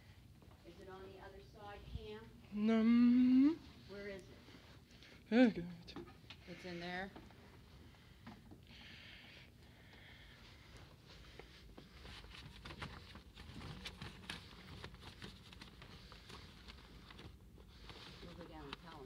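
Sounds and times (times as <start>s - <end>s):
paper folders rustling and clicking: 11.7s - 19.0s.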